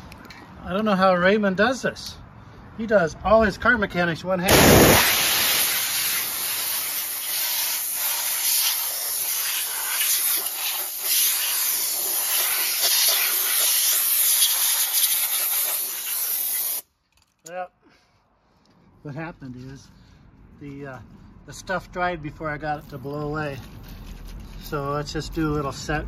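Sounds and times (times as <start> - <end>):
compressed air blowing: 4.5 - 16.8.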